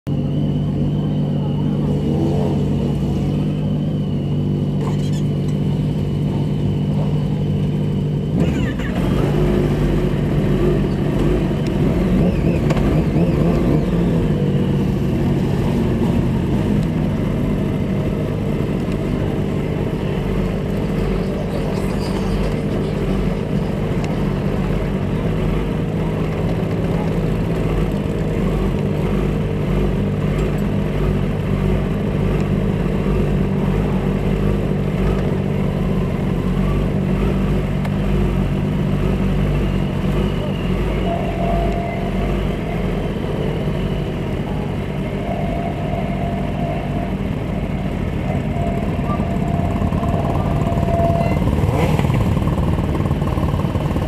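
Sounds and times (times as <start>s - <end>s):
motorcycle engine idling and revving: 0.0s - 54.0s.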